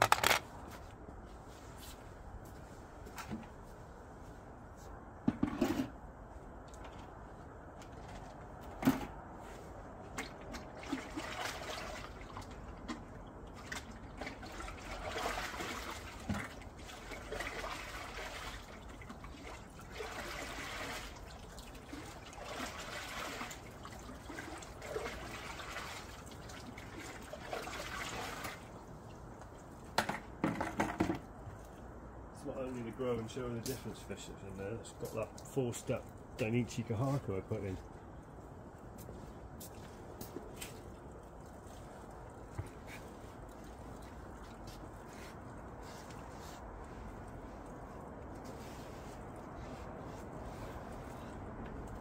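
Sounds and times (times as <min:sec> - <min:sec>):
water trickling into a pond: 0:10.0 - 0:30.0, 0:31.3 - 0:52.0.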